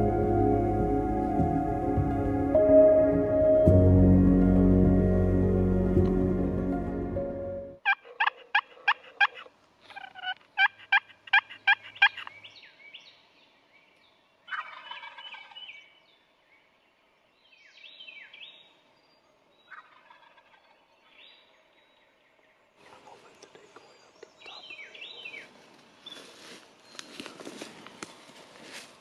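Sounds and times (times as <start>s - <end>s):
turkey gobbling: 7.8s - 12.3s, 14.5s - 15.8s, 19.7s - 20.8s
turkey yelping: 7.8s - 12.3s, 14.5s - 15.7s, 19.7s - 20.6s
thin falling bird calls: 23.2s - 28.7s.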